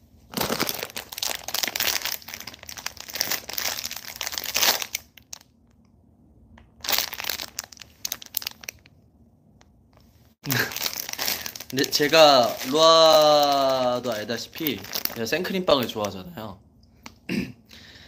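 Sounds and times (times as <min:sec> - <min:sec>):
plastic wrapper crackling: 0:00.3 - 0:05.6, 0:06.6 - 0:09.0, 0:10.5 - 0:16.2.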